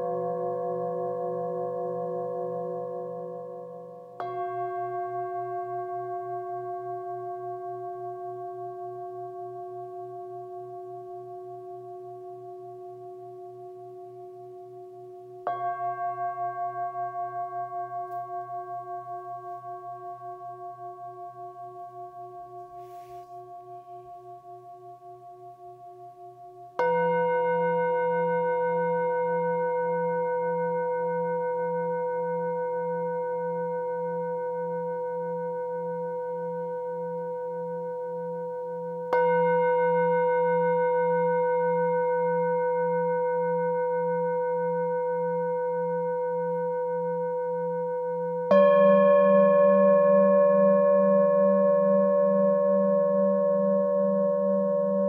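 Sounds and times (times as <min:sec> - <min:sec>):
singing bowls ringing: 0:00.0 - 0:55.0
singing bowl struck with mallet: 0:38.3 - 0:45.8, 0:48.0 - 0:55.0.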